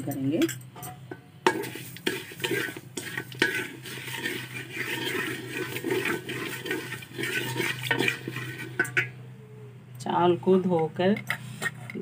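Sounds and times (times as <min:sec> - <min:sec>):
steady low hum: 0:00.0 - 0:12.0
spatula knocking pot: 0:00.4 - 0:09.1
ghee and sugar sizzling in pot: 0:01.4 - 0:09.2
wooden spatula scraping pot: 0:01.5 - 0:09.2.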